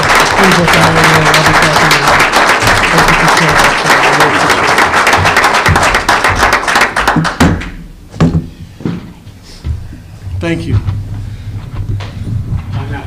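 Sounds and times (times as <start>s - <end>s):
people applauding: 0.0s - 7.6s.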